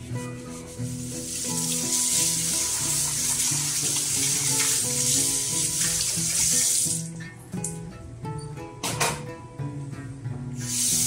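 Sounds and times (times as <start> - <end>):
background music: 0.0 - 11.0
tap water running onto steel plate: 1.1 - 7.2.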